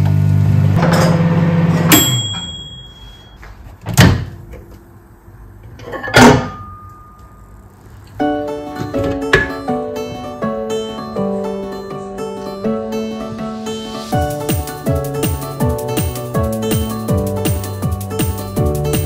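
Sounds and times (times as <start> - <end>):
thin high tone: 1.9 - 3.5.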